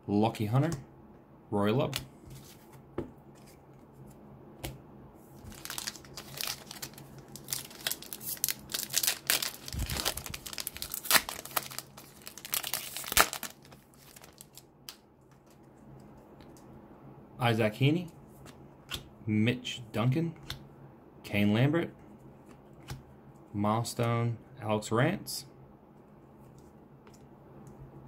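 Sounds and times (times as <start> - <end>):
foil pack tearing and crinkling: 5.5 - 14.6.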